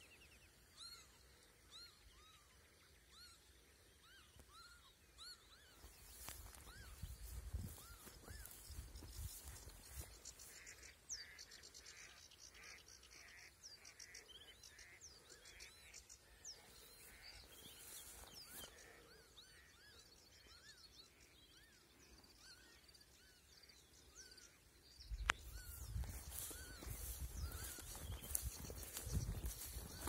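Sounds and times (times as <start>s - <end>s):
birds chirping and whistling: 4.1s - 10.5s, 25.1s - 30.0s.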